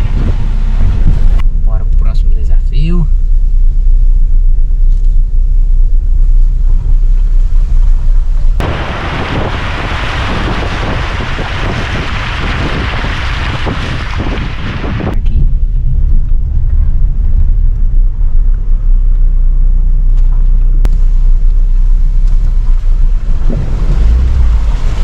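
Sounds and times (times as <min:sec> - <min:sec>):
wind on microphone: 0:00.0 - 0:01.6, 0:08.6 - 0:18.8
car engine rumble: 0:00.0 - 0:25.0
water splashing under car: 0:08.6 - 0:15.2, 0:21.1 - 0:25.0.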